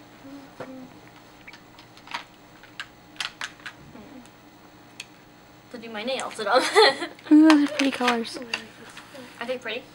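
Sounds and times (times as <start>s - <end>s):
small bottles clicking in packaging: 1.5s - 3.8s, 7.5s - 8.6s.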